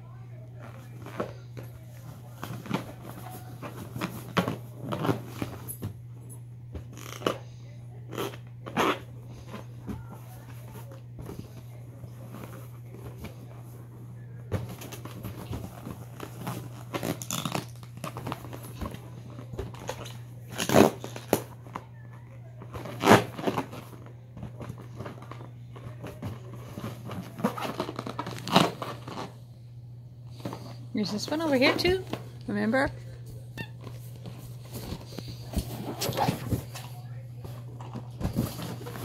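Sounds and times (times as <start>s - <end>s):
steady low hum: 0.0s - 39.0s
balloons squeaking: 26.6s - 29.3s, 33.5s - 36.8s.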